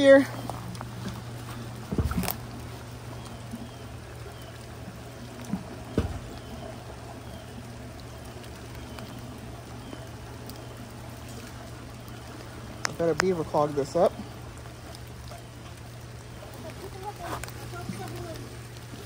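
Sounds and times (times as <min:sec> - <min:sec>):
floodwater pouring into a pipe: 0:00.0 - 0:19.0
dull knocks: 0:05.9 - 0:06.4.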